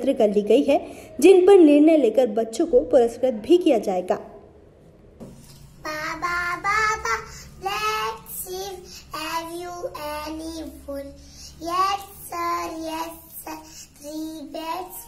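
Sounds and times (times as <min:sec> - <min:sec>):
girl singing: 0:05.8 - 0:15.0.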